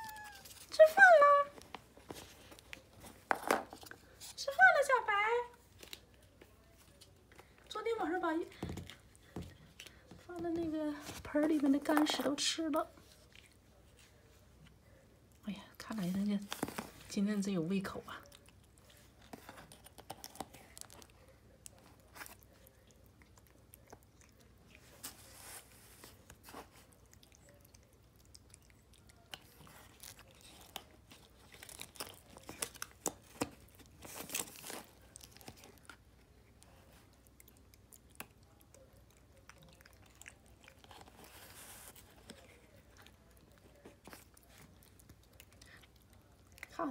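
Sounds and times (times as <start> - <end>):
cat eating wet food: 18.2 - 46.9.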